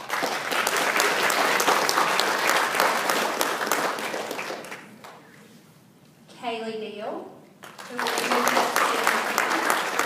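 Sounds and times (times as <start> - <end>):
crowd applauding: 0.0 - 5.1, 7.6 - 10.0.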